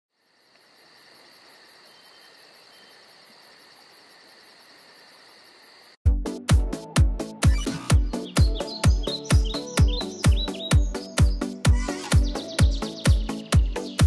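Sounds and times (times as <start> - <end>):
night insects chirping: 0.1 - 6.0.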